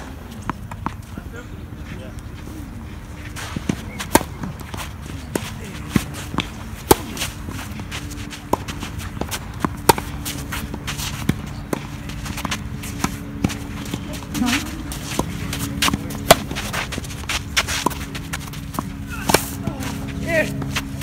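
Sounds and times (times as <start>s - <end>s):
racquets striking tennis ball: 0.0s - 1.4s, 3.0s - 21.0s
shuffling footsteps on court: 0.0s - 21.0s
ball bouncing: 3.6s - 19.7s.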